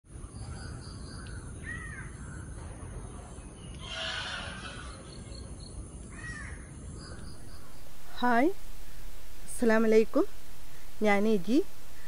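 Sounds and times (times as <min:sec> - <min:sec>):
steady low rumble: 0:07.1 - 0:12.0.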